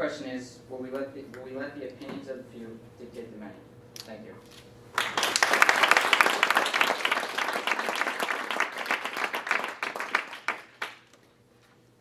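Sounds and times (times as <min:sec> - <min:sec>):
audience applauding: 0:05.0 - 0:11.2.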